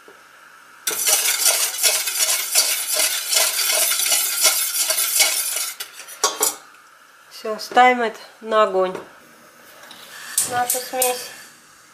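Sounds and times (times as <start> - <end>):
whisk scraping and clicking in pot: 0.9 - 6.6.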